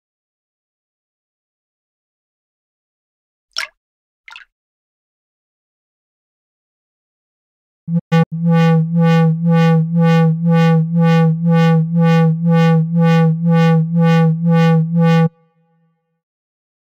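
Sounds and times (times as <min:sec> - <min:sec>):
pulsing low synthesized tone: 0:07.9 - 0:15.4.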